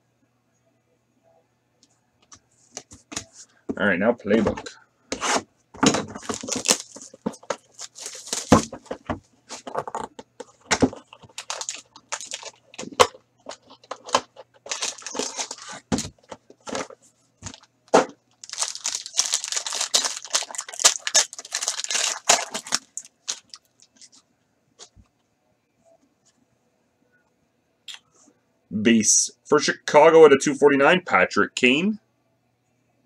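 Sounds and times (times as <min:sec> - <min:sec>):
knocks of box and cards: 0:04.4 - 0:07.7, 0:08.3 - 0:11.3
foil wrapper crinkling: 0:05.8 - 0:24.2.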